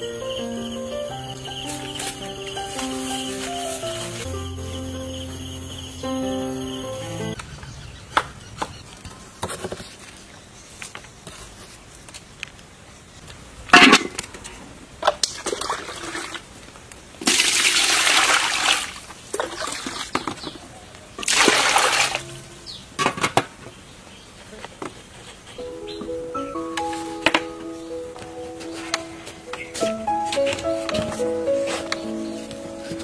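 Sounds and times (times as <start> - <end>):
water pouring into metal pot: 17.2 - 20.0, 21.2 - 22.2.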